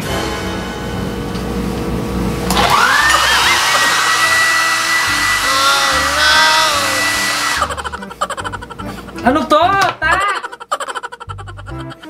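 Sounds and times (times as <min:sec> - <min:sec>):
background music: 0:00.0 - 0:12.0
hair dryer blowing: 0:02.4 - 0:08.5.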